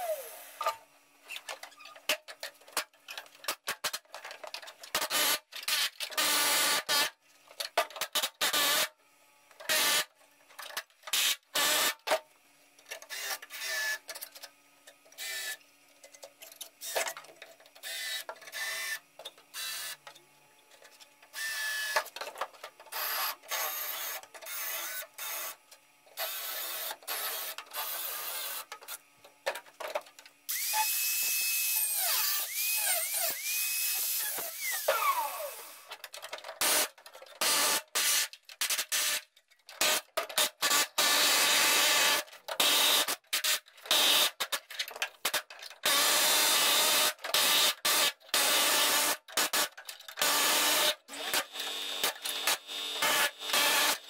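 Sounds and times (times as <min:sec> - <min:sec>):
high-speed tool whining: 0:30.5 - 0:35.9
air hammer cutting sheet steel: 0:50.2 - 0:54.0.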